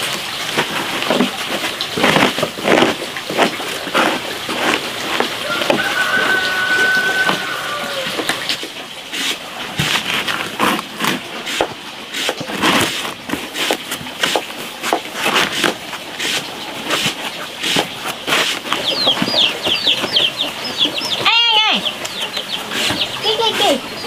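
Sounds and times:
bird chirping rapidly: 17.3 - 24.0.

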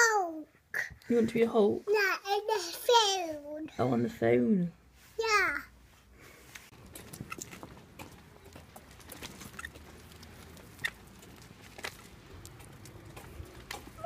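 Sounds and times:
footsteps on wet pavement: 6.7 - 14.0
pushchair rolling on pavement: 6.7 - 14.0.

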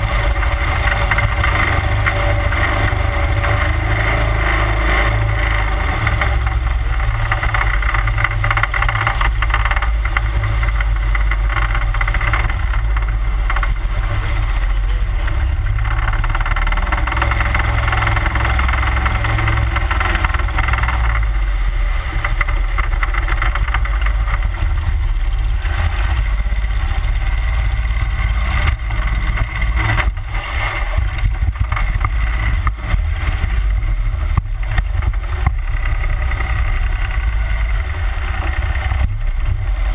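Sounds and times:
boat motor running: 0.0 - 39.9.

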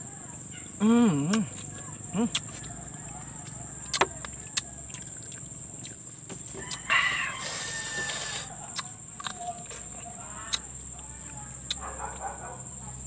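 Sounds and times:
mouth clicks and smacks: 0.8 - 2.8, 3.4 - 6.9, 8.2 - 12.3
rooster crowing: 2.5 - 5.2, 6.4 - 8.7.

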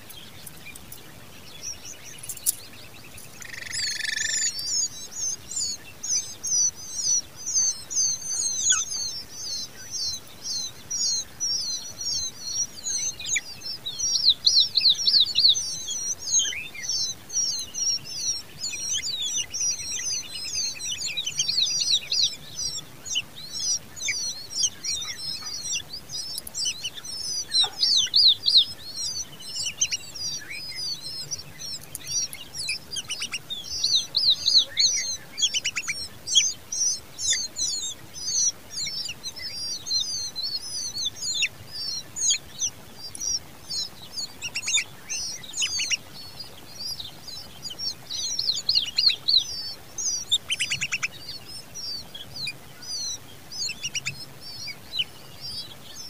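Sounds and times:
nestlings begging chirps: 0.0 - 56.0.

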